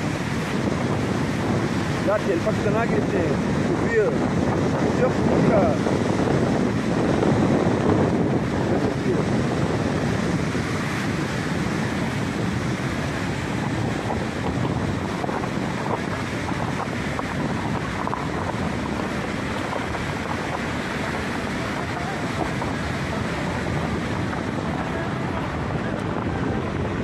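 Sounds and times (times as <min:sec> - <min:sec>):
river rapids rushing over boulders: 0:00.0 - 0:27.0.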